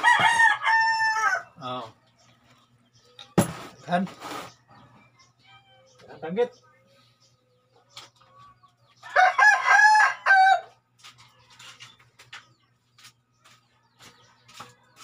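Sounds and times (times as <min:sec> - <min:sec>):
rooster crowing: 0:00.0 - 0:01.6, 0:09.0 - 0:10.8.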